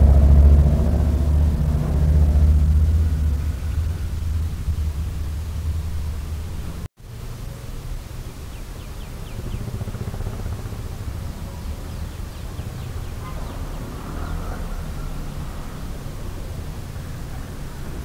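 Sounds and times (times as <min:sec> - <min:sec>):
low steady rumble: 0:00.0 - 0:18.0
bird chirping: 0:08.4 - 0:10.3, 0:11.2 - 0:15.1.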